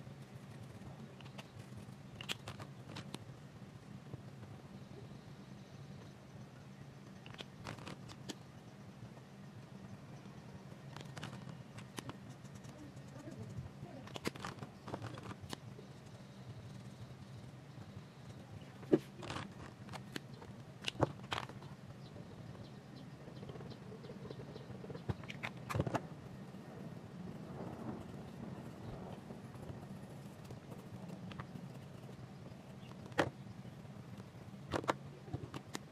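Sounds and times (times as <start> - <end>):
steady low hum: 0.0 - 35.9
markers clicking and tapping: 0.3 - 3.2, 7.2 - 8.4, 10.9 - 16.2, 18.3 - 21.7, 27.8 - 33.3.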